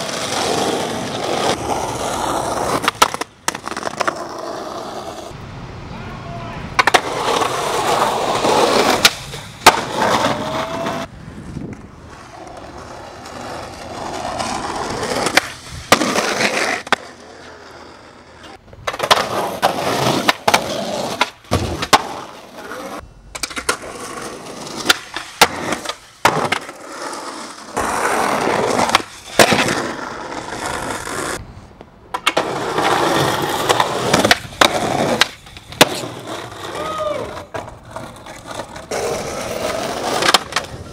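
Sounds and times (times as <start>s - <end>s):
skateboard wheels rolling on pavement: 0.0s - 40.9s
skateboard clacks and slaps: 6.8s - 11.1s, 24.8s - 26.8s, 28.6s - 29.9s, 32.1s - 40.9s.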